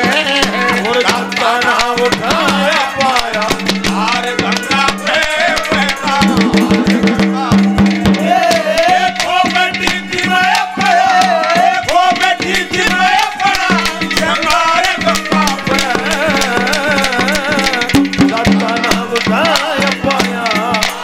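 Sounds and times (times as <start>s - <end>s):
dholak drum strokes: 0.0s - 21.0s
wavering melody line: 12.6s - 20.8s.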